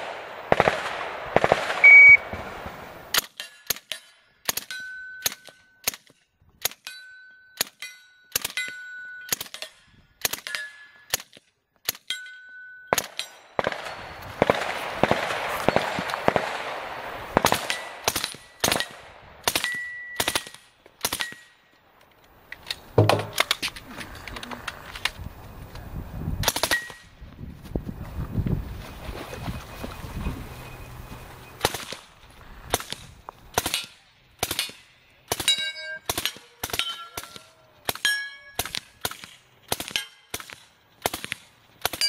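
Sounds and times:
suppressed gunfire: 0:00.0 - 0:06.8, 0:12.9 - 0:21.5, 0:22.7 - 0:23.6
shot timer beep: 0:01.8 - 0:02.2
steel targets ringing: 0:35.5 - 0:36.1, 0:36.8 - 0:37.4, 0:38.0 - 0:38.6.

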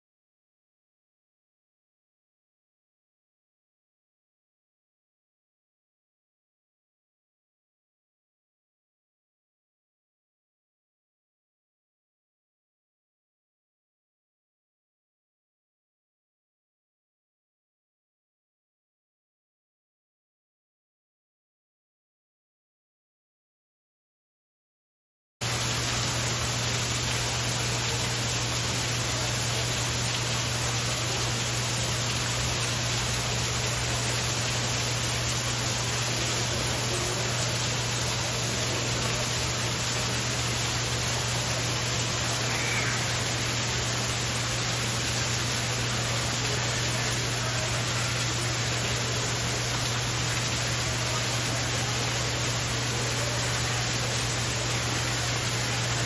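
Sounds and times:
steady hiss: 0:25.4 - 0:56.0.

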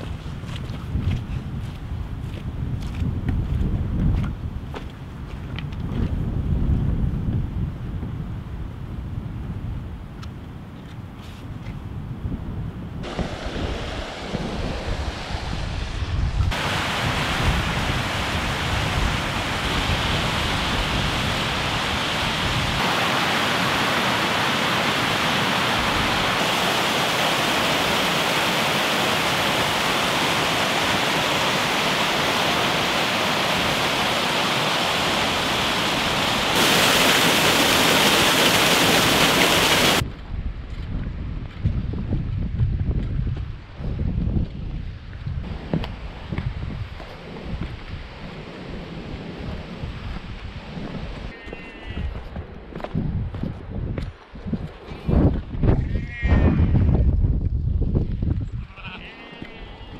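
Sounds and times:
wind rumble on microphone: 0:00.0 - 0:22.9, 0:39.2 - 0:59.9
water rushing over rocks: 0:13.0 - 0:15.6, 0:16.5 - 0:40.0.

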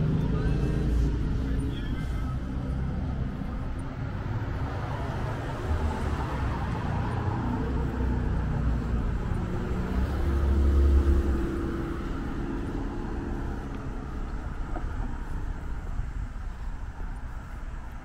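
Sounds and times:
distant traffic rumble: 0:00.0 - 0:18.0
car driving past: 0:04.3 - 0:16.0.

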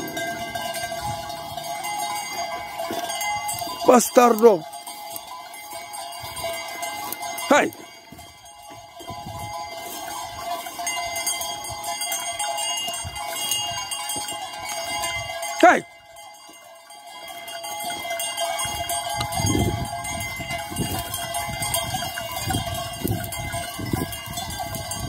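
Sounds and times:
low rumble: 0:00.0 - 0:02.5
sheep bells ringing: 0:00.0 - 0:25.0
man shouting: 0:15.6 - 0:15.9.

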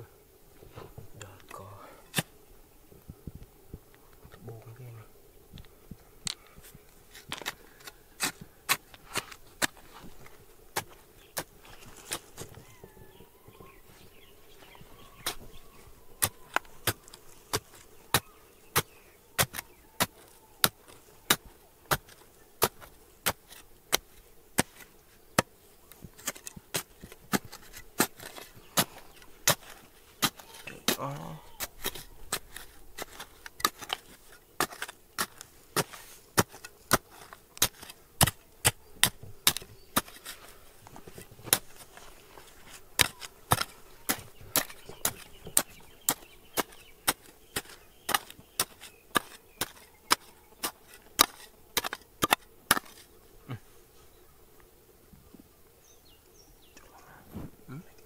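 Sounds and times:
hand tool striking rock: 0:07.1 - 0:12.7, 0:15.2 - 0:15.5, 0:16.2 - 0:53.1.

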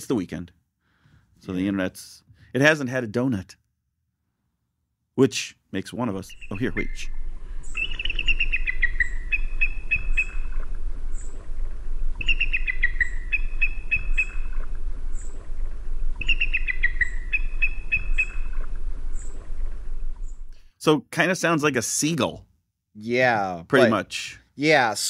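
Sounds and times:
eagle calling: 0:06.2 - 0:11.5, 0:12.1 - 0:15.5, 0:16.1 - 0:20.4
steady low hum: 0:06.2 - 0:20.6.

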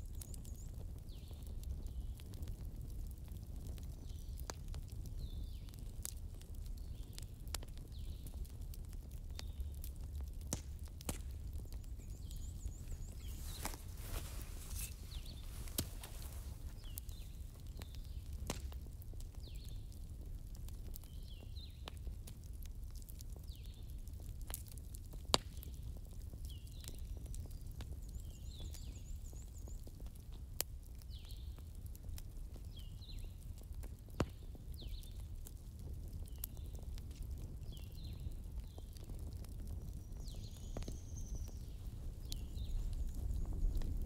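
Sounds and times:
fire crackles and pops: 0:00.0 - 0:44.0
campfire flames rushing: 0:00.1 - 0:28.3, 0:29.6 - 0:44.0
birds chirping: 0:11.5 - 0:18.3.

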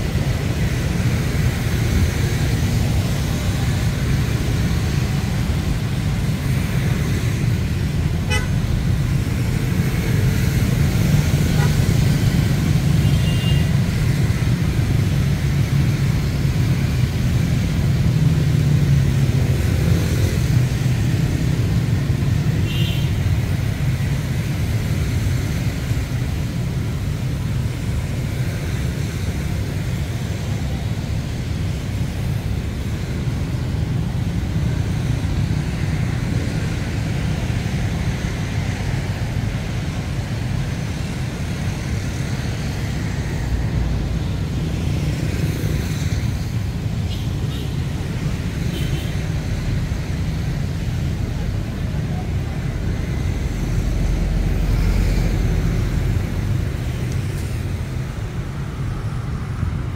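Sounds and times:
road traffic rumble: 0:00.0 - 0:59.9.

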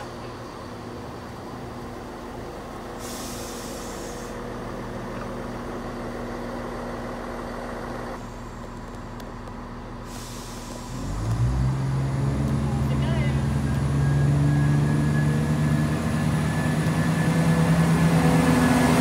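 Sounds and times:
moving train noise: 0:00.0 - 0:19.0
train engine hum: 0:00.0 - 0:19.0
hiss: 0:03.0 - 0:04.4, 0:10.0 - 0:11.1.

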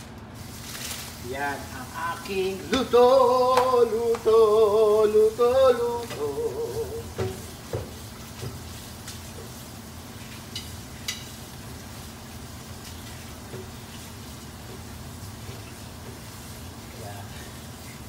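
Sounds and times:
pot of broth hissing: 0:06.2 - 0:18.0.

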